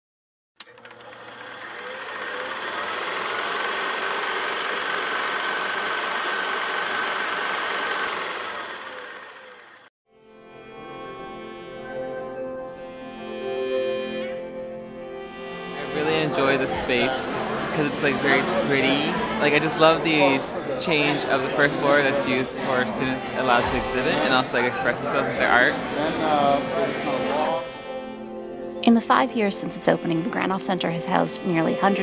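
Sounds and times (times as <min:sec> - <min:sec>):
film projector clatter: 0:00.6 - 0:09.9
sustained chords music: 0:10.3 - 0:32.0.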